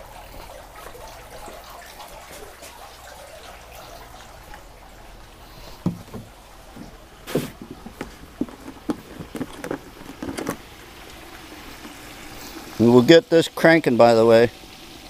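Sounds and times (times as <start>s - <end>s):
hot oil bubbling and crackling: 0.0s - 15.0s
short knocks: 5.8s - 10.6s.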